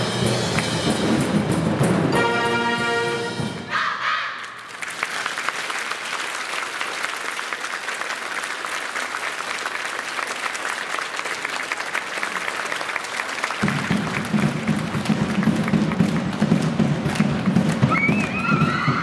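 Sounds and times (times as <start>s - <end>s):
brass band music: 0.0s - 4.4s
audience applauding: 4.4s - 19.0s.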